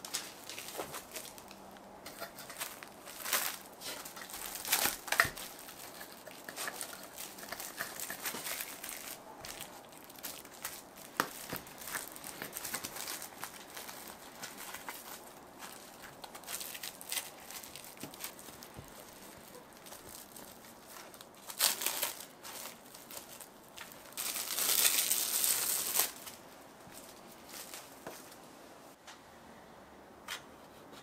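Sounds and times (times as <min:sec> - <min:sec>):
crinkling and rustling: 0:00.0 - 0:28.9.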